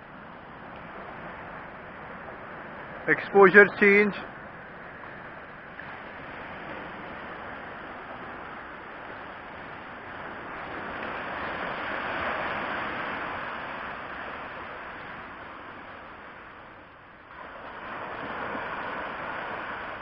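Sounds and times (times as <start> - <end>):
gentle surf: 0.0 - 20.0.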